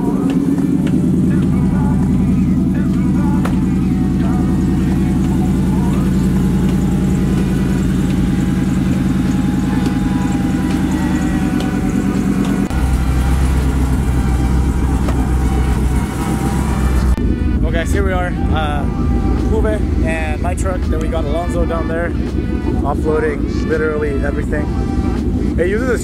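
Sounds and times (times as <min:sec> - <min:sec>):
truck engine idling: 0:00.0 - 0:26.0.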